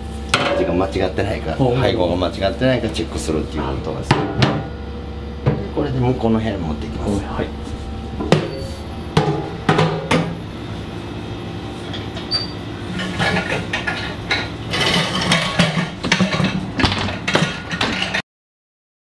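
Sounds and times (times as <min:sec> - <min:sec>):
machine hum: 0:00.0 - 0:18.2
metal mixing bowl clattering: 0:13.0 - 0:18.2.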